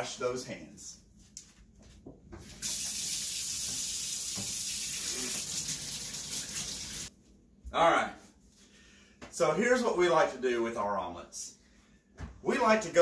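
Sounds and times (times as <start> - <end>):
faucet water running into sink: 2.4 - 7.1
hands washing under water: 2.4 - 7.1.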